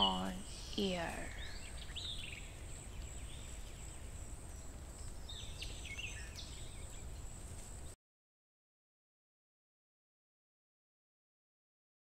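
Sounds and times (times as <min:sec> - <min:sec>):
high-pitched drone: 0:00.0 - 0:01.2
bird chirps: 0:00.0 - 0:07.9.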